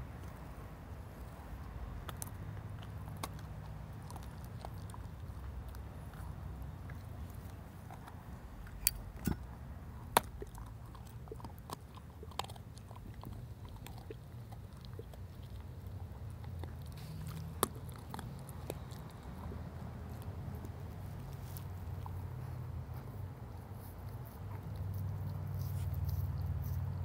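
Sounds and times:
low steady rumble: 0.0s - 27.0s
dog teeth cracking on bone: 2.0s - 21.4s.

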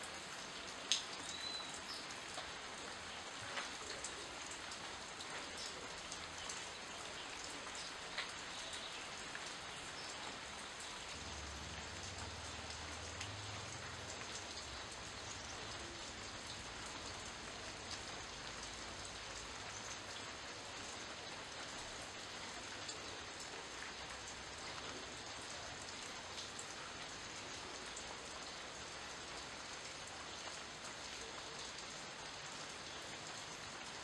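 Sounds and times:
rain falling on leaves: 0.0s - 34.0s.

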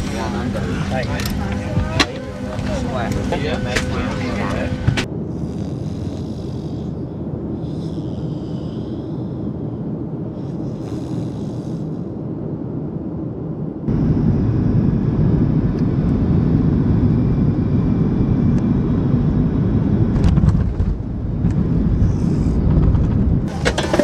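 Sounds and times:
jet airliner cabin rushing: 0.0s - 5.1s, 19.9s - 24.0s.

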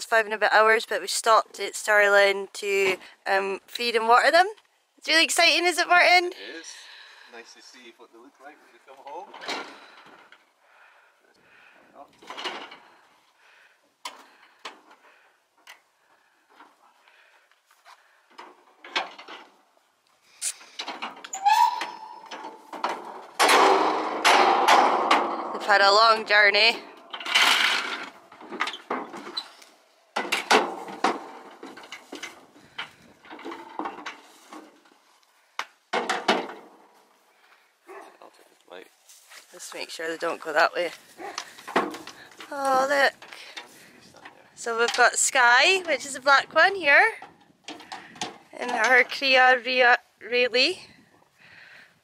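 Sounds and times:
metal clanks and rattles: 9.0s - 10.5s, 12.0s - 13.1s, 18.2s - 19.6s, 20.7s - 35.1s, 35.9s - 37.0s, 41.2s - 49.4s.

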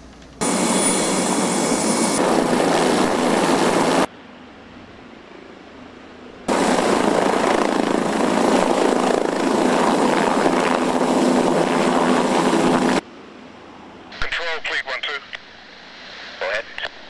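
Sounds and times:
helicopter hovering: 0.4s - 4.1s, 6.5s - 13.0s.

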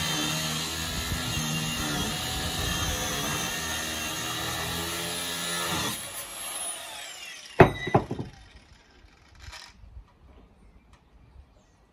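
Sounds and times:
sharp knocks: 7.6s - 8.4s.

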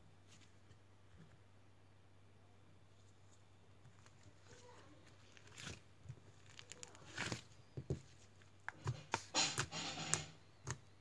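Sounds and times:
hands squishing slime: 3.8s - 11.0s.

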